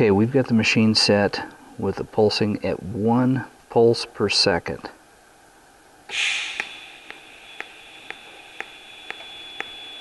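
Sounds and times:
welding arc hissing: 6.1s - 10.0s
sharp ticks: 6.5s - 10.0s.

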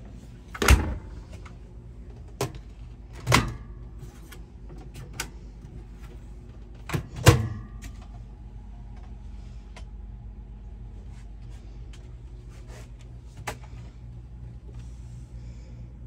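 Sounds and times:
microwave door latch clunk: 0.6s - 1.2s.

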